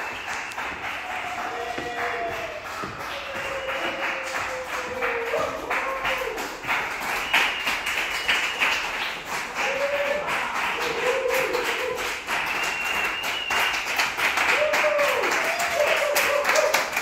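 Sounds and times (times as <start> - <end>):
voices: 0.0 - 8.7
audience clapping: 0.0 - 17.0.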